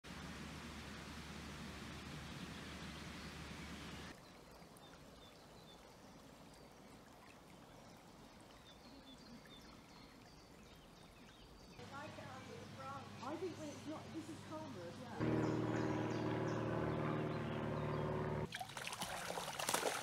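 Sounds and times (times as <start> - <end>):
shallow stream flowing: 0.1 - 20.0
small birds chirping: 7.6 - 18.5.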